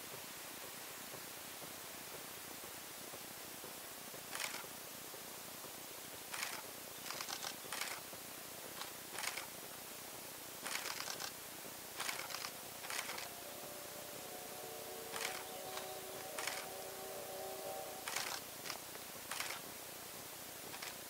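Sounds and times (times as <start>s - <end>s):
steady hiss: 0.0s - 21.0s
camera shutter clicks: 4.3s - 4.6s, 6.3s - 8.0s, 8.8s - 9.5s, 10.6s - 11.4s, 12.0s - 13.3s, 18.1s - 19.6s, 20.7s - 21.0s.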